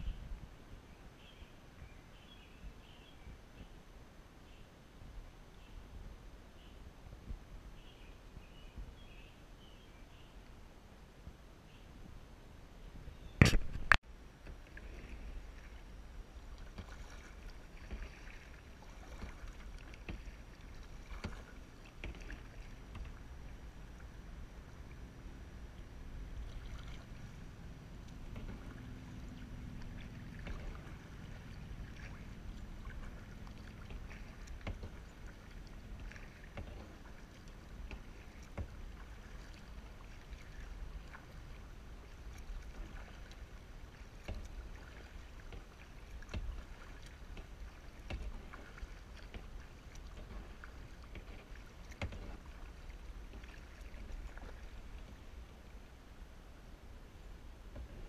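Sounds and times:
paddle splashing water: 0:13.4 - 0:58.0.

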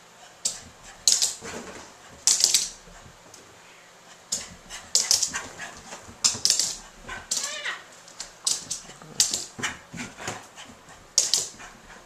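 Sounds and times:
dog claws clicking on wooden floor: 0:00.5 - 0:03.0, 0:04.4 - 0:10.4, 0:11.0 - 0:12.0.

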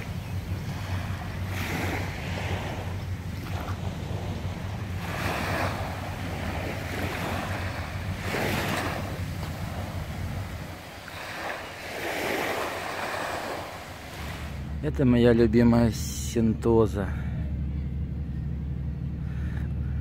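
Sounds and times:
small waves washing on beach: 0:00.0 - 0:14.8
wind rumbling on microphone: 0:00.0 - 0:16.6.

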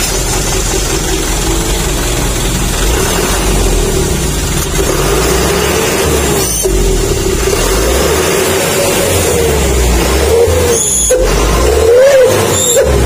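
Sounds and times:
diesel engine rumble: 0:00.0 - 0:13.0
howling exhaust whistle: 0:09.4 - 0:13.0.

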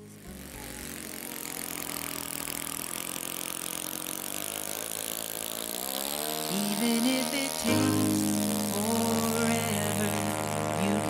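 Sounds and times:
model plane engine running: 0:00.0 - 0:11.0.

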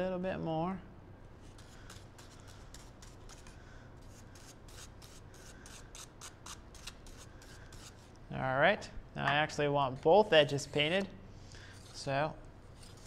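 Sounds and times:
brush scratchy strokes: 0:01.4 - 0:08.1, 0:11.6 - 0:13.0.

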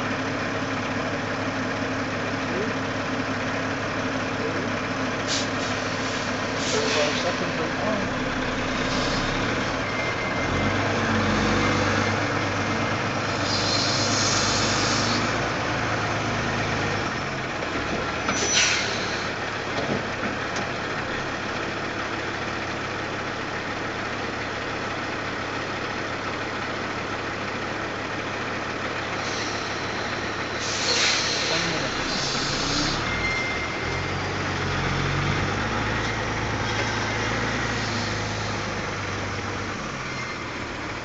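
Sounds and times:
diesel truck engine: 0:00.0 - 0:41.0
air brakes hissing: 0:05.2 - 0:07.4, 0:08.8 - 0:09.4, 0:13.3 - 0:15.3, 0:18.3 - 0:19.4, 0:29.2 - 0:33.9, 0:36.7 - 0:39.0.

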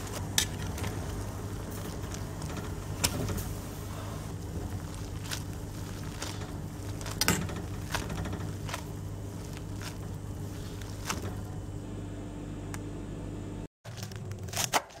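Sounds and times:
noodles boiling in a pot: 0:00.0 - 0:11.9
steady low hum: 0:00.0 - 0:13.7.

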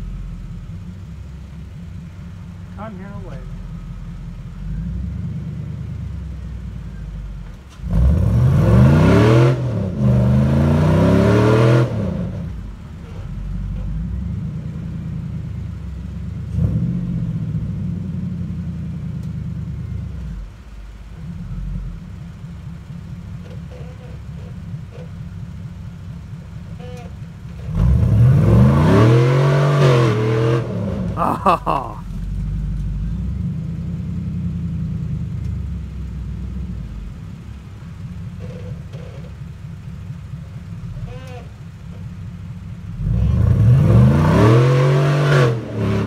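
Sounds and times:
engine working under load: 0:00.0 - 0:46.0
engine revving hard: 0:07.8 - 0:12.5, 0:27.7 - 0:31.8, 0:43.0 - 0:46.0.

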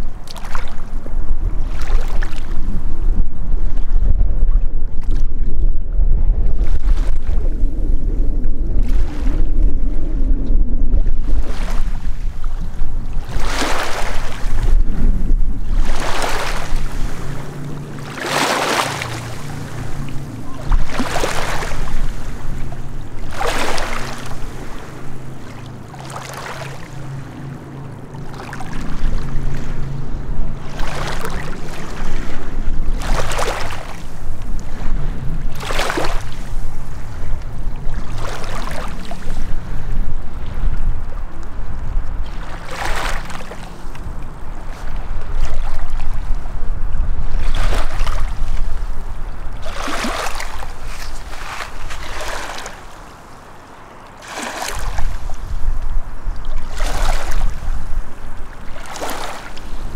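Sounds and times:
steady low rumble: 0:00.0 - 0:59.9
waves washing against rocky shore: 0:11.3 - 0:40.5, 0:42.3 - 0:59.9.

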